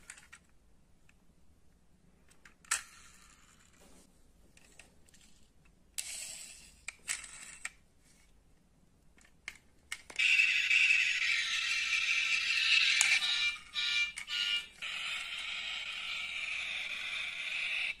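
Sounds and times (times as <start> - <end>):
toy car clicks and scrapes: 2.4 - 3.8, 4.6 - 8.3, 9.2 - 18.0.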